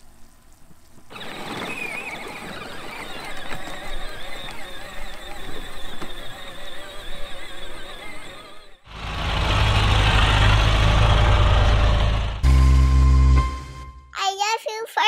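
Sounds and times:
wheels rumbling: 0:00.0 - 0:13.8
toy tractor motor whining: 0:01.1 - 0:11.0.

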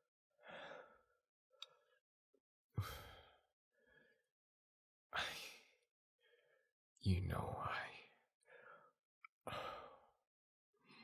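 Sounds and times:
man breathing: 0:00.4 - 0:02.0, 0:02.8 - 0:04.3, 0:05.5 - 0:06.7, 0:08.4 - 0:10.2.

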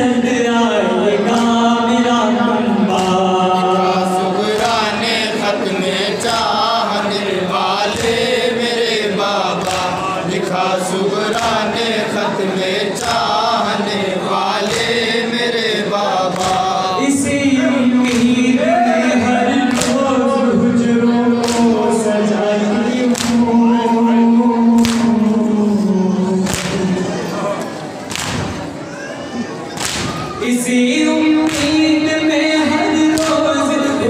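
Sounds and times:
men chanting into a microphone: 0:00.0 - 0:27.6, 0:30.4 - 0:34.0
hands slapping on chests: 0:21.4 - 0:21.7, 0:23.1 - 0:23.4, 0:24.8 - 0:25.1, 0:26.5 - 0:26.8, 0:28.1 - 0:28.6, 0:29.8 - 0:30.2.

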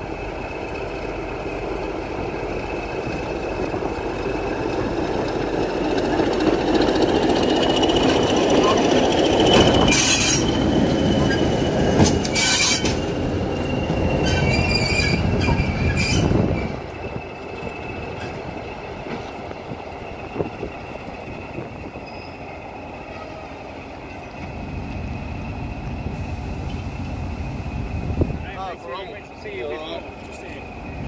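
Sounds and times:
diesel locomotive engine: 0:00.0 - 0:31.0
wheel squeals: 0:06.3 - 0:19.4, 0:20.0 - 0:24.6.

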